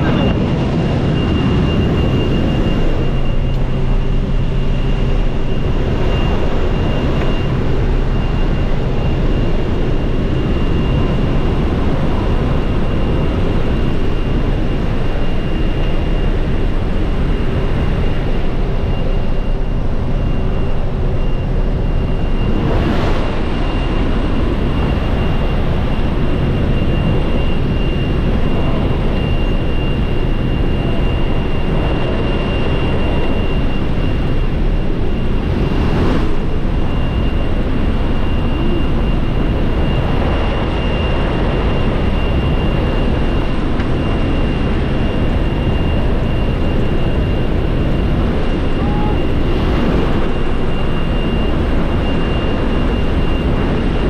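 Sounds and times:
airplane engine and propeller drone: 0.0 - 54.0
high-pitched whine: 0.0 - 54.0
rushing airflow: 19.8 - 54.0.

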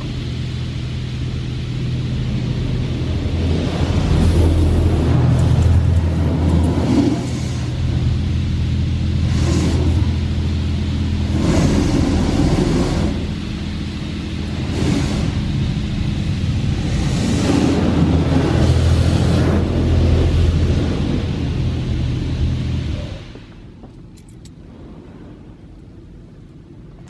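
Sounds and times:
high-pressure water spray: 0.0 - 23.6
machinery hum: 0.0 - 27.0.

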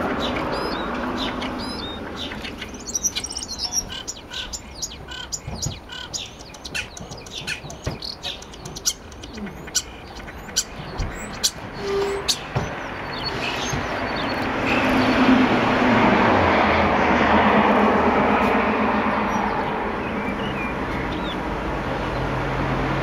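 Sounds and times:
starling clicks chirps and whistles: 5.3 - 12.8.

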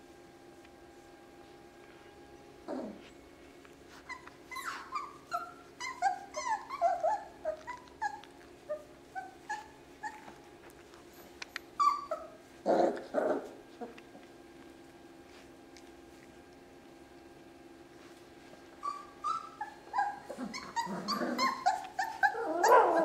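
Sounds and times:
puppies whimpering and yipping: 3.9 - 14.0, 18.8 - 23.0.

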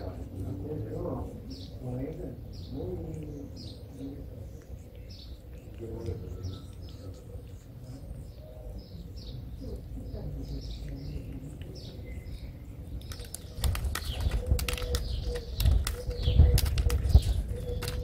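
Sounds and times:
small birds chirping: 0.0 - 18.0
sharp clicks: 12.8 - 18.0.

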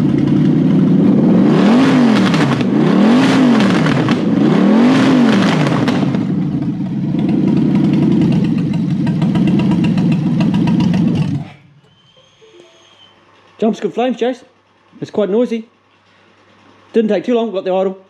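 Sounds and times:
engine revving and idling: 0.0 - 11.9.

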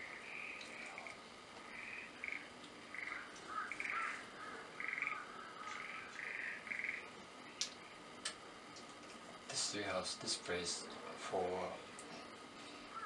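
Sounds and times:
small animal rasping calls: 0.0 - 7.1.

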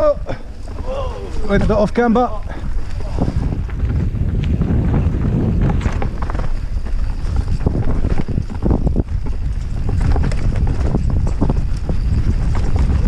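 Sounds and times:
bike rattling and knocking: 0.0 - 13.0
wind buffeting microphone: 0.0 - 13.0.

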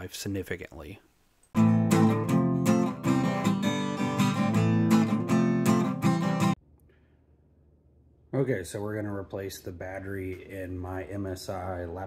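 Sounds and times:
strummed acoustic guitar chords: 1.6 - 6.6.

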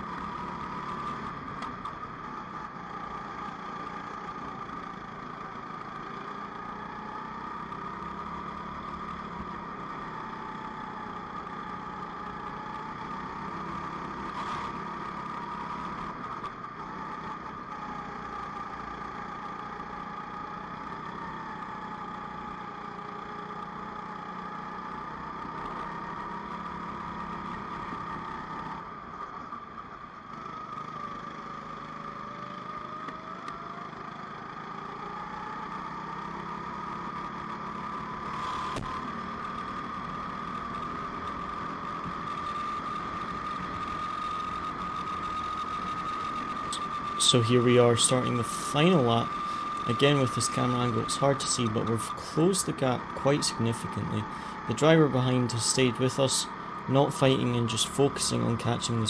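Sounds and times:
kart engines racing: 29.6 - 59.0.

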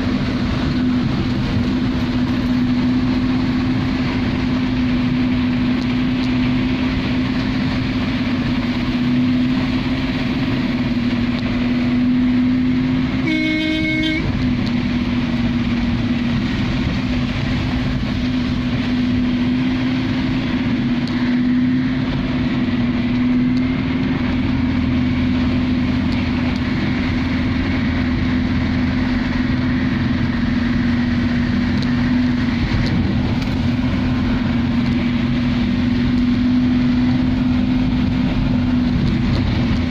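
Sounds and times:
engine hum: 0.0 - 39.9
heavy rain on vehicle roof: 0.0 - 39.9
car horn: 13.2 - 14.4.

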